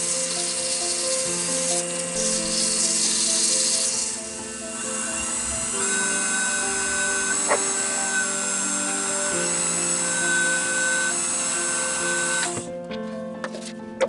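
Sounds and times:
wood lathe running: 0.0s - 12.7s
music of held chords: 0.0s - 14.0s.

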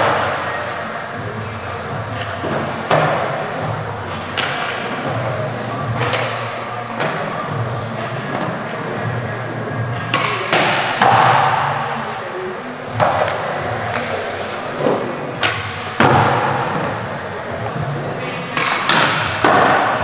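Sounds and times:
background music: 0.0s - 20.0s
skateboard wheels rolling on concrete: 12.0s - 20.0s
skateboard clacks and thuds: 12.9s - 17.0s, 18.5s - 20.0s.

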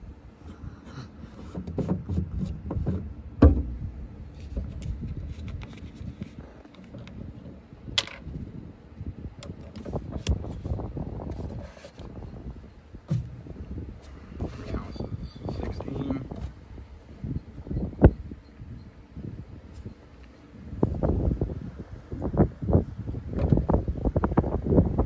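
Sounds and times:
knocks on metal deck: 1.8s - 3.8s
plastic caps unscrewing: 4.4s - 8.3s.

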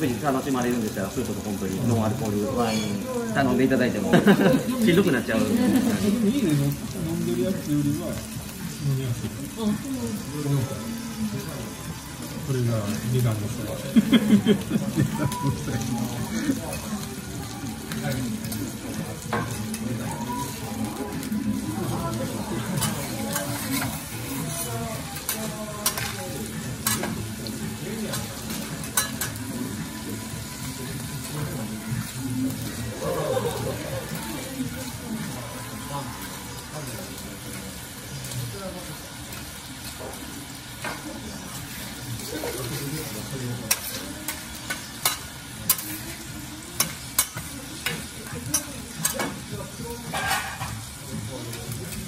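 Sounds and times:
food sizzling on a griddle: 0.0s - 52.0s
metal utensils scraping griddle: 22.6s - 27.2s, 50.1s - 50.8s.

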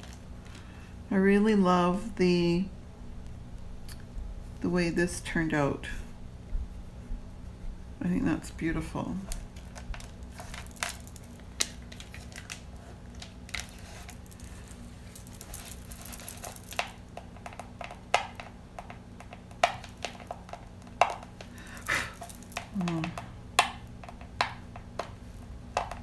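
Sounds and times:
steady low hum: 0.0s - 26.0s
resin bowl clicking and knocking: 9.3s - 26.0s.

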